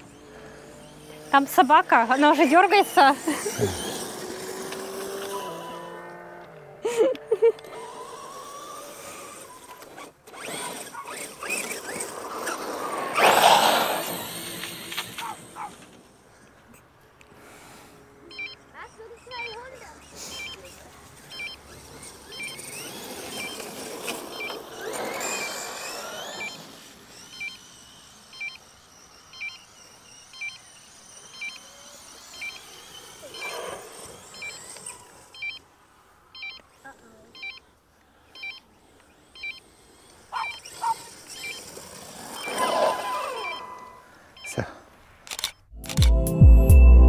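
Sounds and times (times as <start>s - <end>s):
electric motor whining: 0.0s - 44.6s
short high electronic beep: 42.4s - 44.6s.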